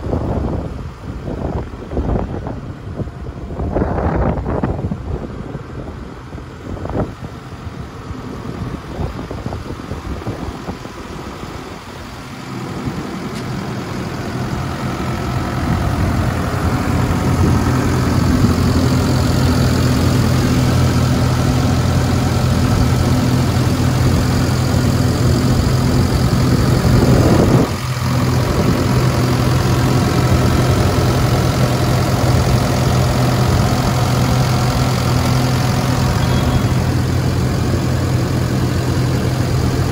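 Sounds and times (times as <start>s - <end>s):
wind on microphone: 0.0s - 11.8s, 15.3s - 20.8s, 25.2s - 29.0s
diesel engine idling: 0.0s - 39.9s.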